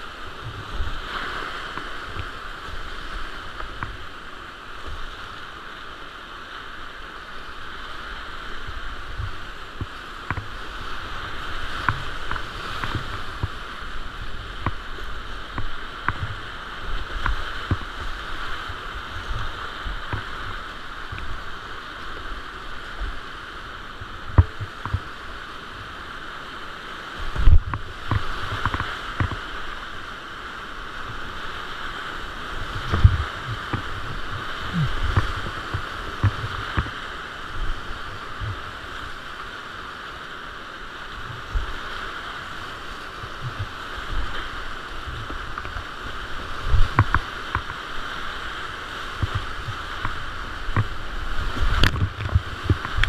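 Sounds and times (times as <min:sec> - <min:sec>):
whitewater rapids rushing: 0:00.0 - 0:53.0
knocks and splashes against boat: 0:11.7 - 0:13.6, 0:17.0 - 0:18.7, 0:24.2 - 0:25.1, 0:27.3 - 0:29.5, 0:32.6 - 0:38.7, 0:43.2 - 0:47.8, 0:49.2 - 0:53.0.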